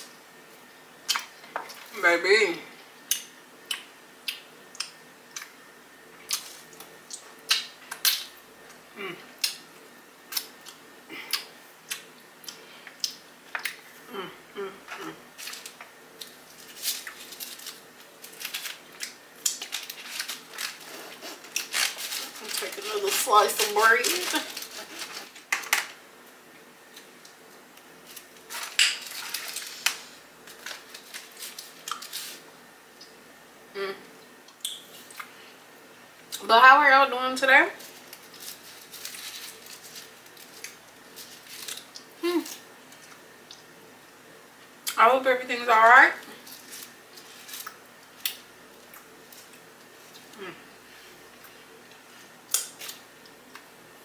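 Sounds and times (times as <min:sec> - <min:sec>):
bread crust crackling: 0:15.0 - 0:25.8, 0:26.8 - 0:32.5, 0:37.8 - 0:43.7
paper bag rustling: 0:19.6 - 0:25.5, 0:28.1 - 0:32.4, 0:37.8 - 0:41.8.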